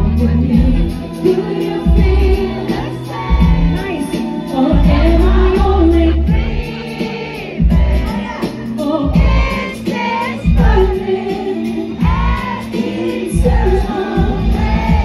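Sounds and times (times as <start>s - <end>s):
band with pulsing bass: 0.0s - 15.0s
woman singing: 0.0s - 15.0s.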